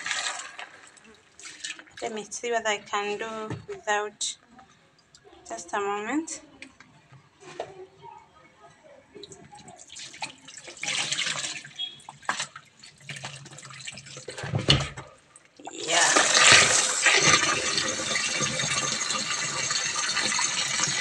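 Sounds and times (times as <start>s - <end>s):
tap water running into tub: 0.0s - 2.1s, 9.4s - 15.0s, 15.6s - 21.0s
splashes and knocks in plastic tub: 10.0s - 15.1s.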